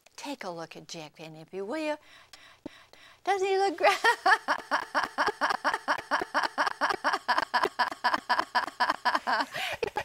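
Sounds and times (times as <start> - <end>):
man laughing hard: 4.0 - 10.0.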